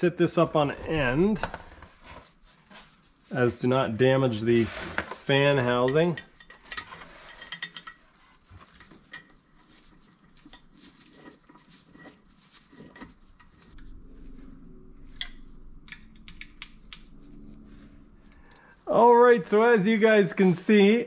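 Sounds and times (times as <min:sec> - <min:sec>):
faint low hum: 0:09.7 - 0:19.8.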